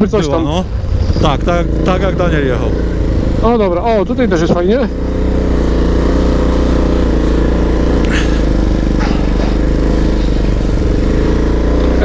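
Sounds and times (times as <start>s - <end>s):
atv engine running: 0.0s - 12.0s.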